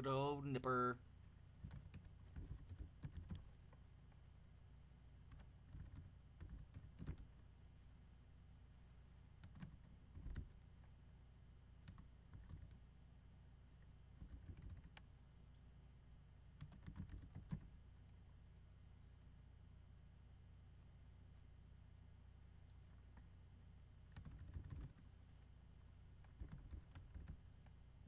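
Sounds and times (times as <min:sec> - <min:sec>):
faint keyboard typing: 0:01.2 - 0:04.2, 0:05.2 - 0:07.5, 0:09.4 - 0:11.0, 0:11.8 - 0:12.9, 0:13.7 - 0:15.1, 0:16.5 - 0:18.2, 0:24.0 - 0:25.1, 0:26.1 - 0:27.8.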